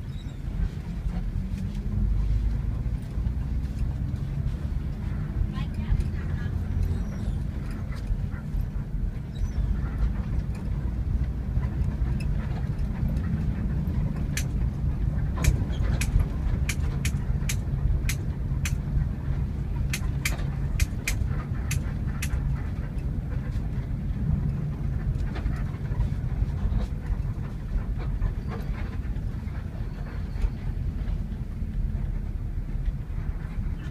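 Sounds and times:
bus engine drone: 0:00.0 - 0:33.9
road noise: 0:00.0 - 0:33.9
sharp ticks: 0:19.9 - 0:22.4.

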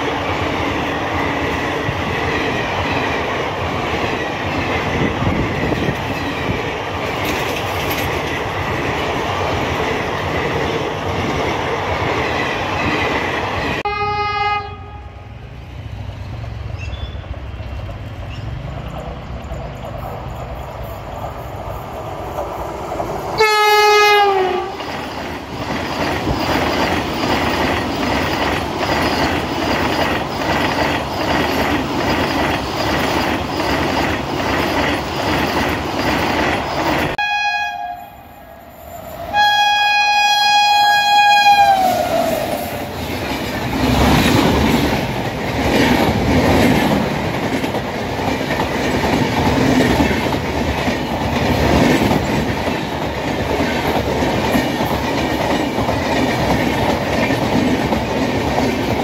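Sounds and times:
train rumble: 0:00.0 - 0:59.0
wheel clatter over rail joints: 0:04.6 - 0:09.2
locomotive horn: 0:13.9 - 0:15.2, 0:23.4 - 0:24.8, 0:37.2 - 0:42.7.

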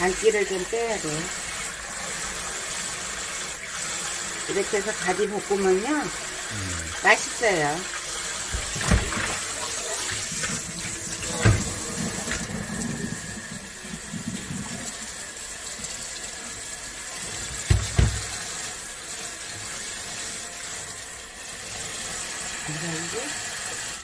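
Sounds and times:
tap running into sink: 0:08.4 - 0:15.0, 0:17.2 - 0:18.6.

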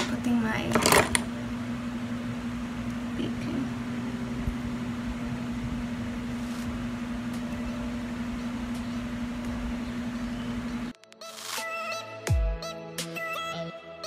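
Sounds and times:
room hum with low tone: 0:00.0 - 0:10.9
background music: 0:11.0 - 0:14.0.

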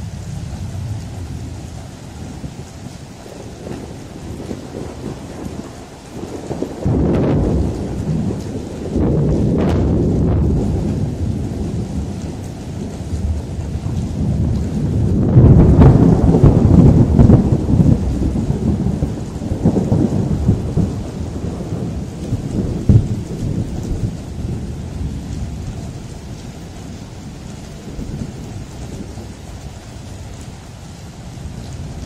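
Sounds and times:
rain hissing: 0:00.0 - 0:32.0
thunder rumbling: 0:00.0 - 0:32.0
sharp thunder crack: 0:03.3 - 0:25.9.

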